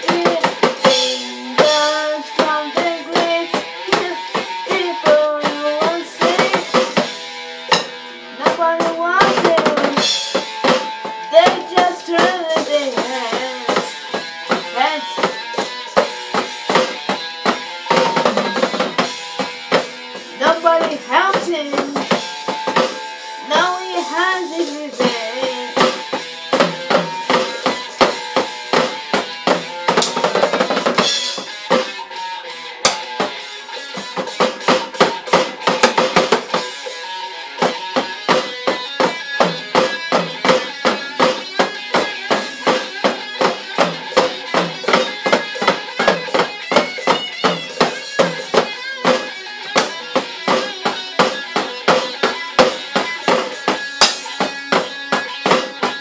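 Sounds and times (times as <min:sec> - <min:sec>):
pitched music: 0:00.0 - 0:56.0
drumsticks hitting electronic drum pad: 0:06.2 - 0:12.8, 0:25.8 - 0:32.0, 0:32.8 - 0:36.7, 0:37.6 - 0:56.0.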